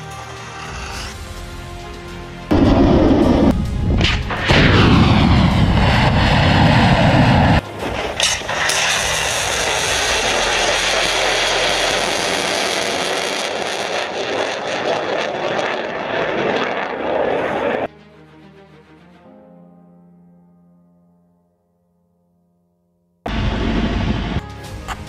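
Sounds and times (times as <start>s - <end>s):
rushing roar of missile motor: 0.1s - 1.3s, 2.5s - 17.9s, 23.3s - 24.4s
missile launch blast roar: 2.5s - 17.9s.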